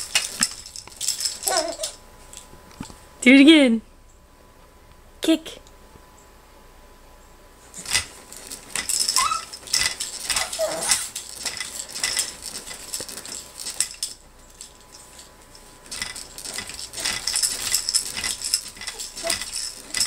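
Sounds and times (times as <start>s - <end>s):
baby bouncer seat rattling: 0.0s - 2.0s, 7.8s - 20.0s
hanging toys clicking together: 0.0s - 3.0s, 7.8s - 20.0s
high squeaks: 8.9s - 11.2s.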